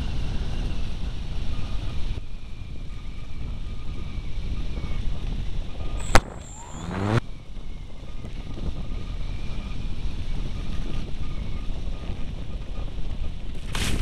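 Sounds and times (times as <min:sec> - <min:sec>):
rushing flight noise: 0:00.0 - 0:14.0
whine sweeping in pitch: 0:02.4 - 0:07.4
sharp click: 0:06.0 - 0:07.2.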